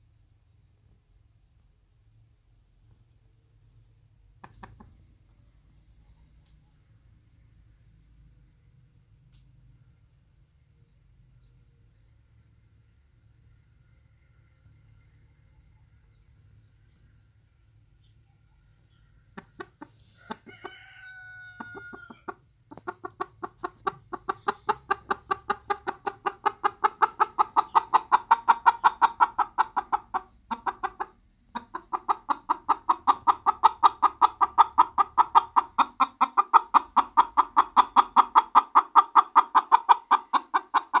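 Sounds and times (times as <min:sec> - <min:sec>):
hen clucking: 0:04.3 - 0:06.6, 0:18.7 - 0:41.0.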